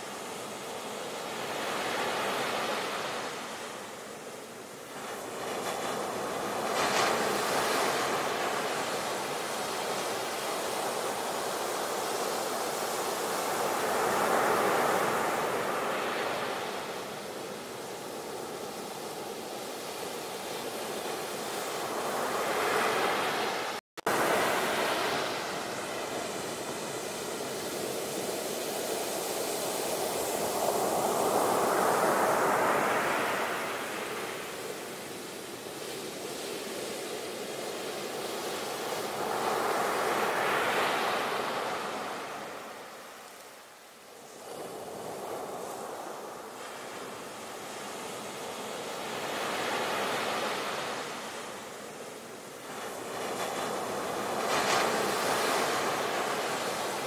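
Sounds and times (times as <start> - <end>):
sea waves breaking: 5.1 - 43.0.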